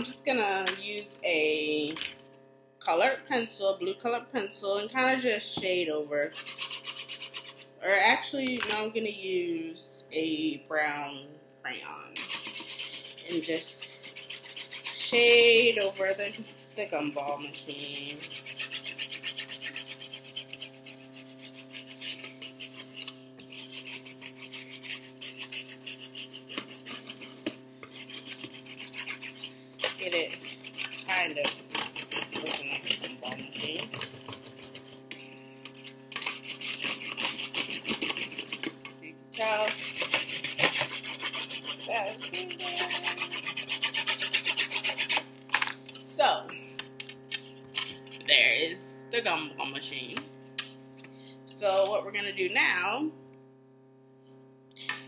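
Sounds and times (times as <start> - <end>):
refrigerator hum: 0.0 - 55.0
crayon scribbling on foam: 6.2 - 7.7, 12.1 - 38.8, 39.4 - 45.3.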